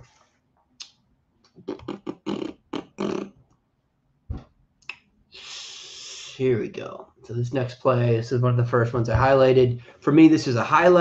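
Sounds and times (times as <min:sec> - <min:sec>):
steady hiss: 0:05.4 - 0:06.5.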